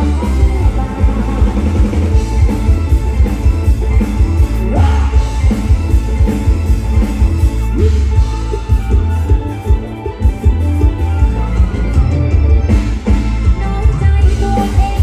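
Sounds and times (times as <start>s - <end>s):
bass and drum beat: 0.0s - 15.0s
loud live band music: 0.0s - 15.0s
person singing: 4.6s - 5.6s, 13.4s - 15.0s.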